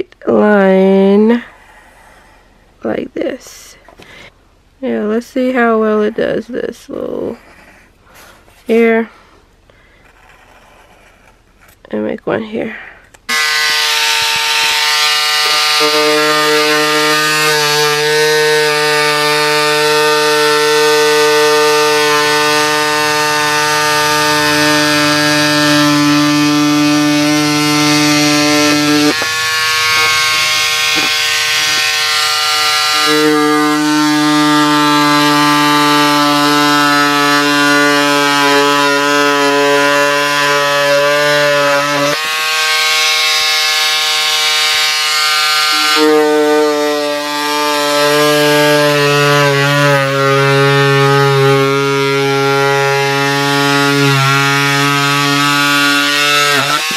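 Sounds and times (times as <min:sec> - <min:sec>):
electric scissors buzzing: 0:13.3 - 0:56.9.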